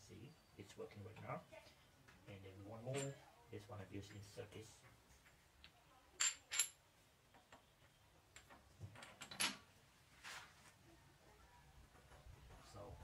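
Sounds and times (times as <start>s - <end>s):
metal clinks: 2.9s - 3.3s, 6.2s - 6.8s, 8.3s - 9.7s.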